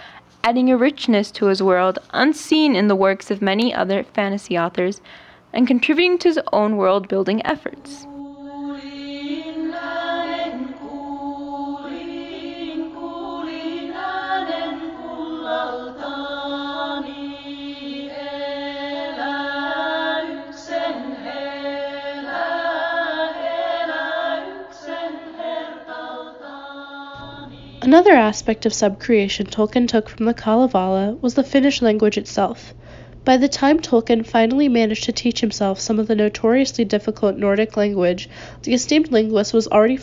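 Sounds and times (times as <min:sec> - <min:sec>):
chanted vocal music: 0:07.6 - 0:29.6
steady drone: 0:27.1 - 0:30.9.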